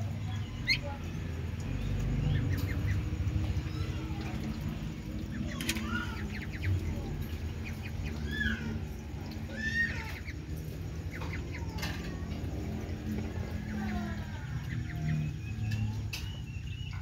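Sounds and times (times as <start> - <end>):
ducklings peeping: 0.0 - 17.0
low background hum: 0.0 - 17.0.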